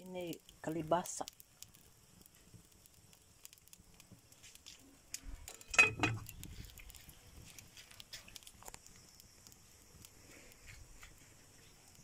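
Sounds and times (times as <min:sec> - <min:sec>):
wood fire crackling: 0:00.0 - 0:12.0
metal lid clanking on pot: 0:05.5 - 0:06.2
metal ringing: 0:05.5 - 0:06.2.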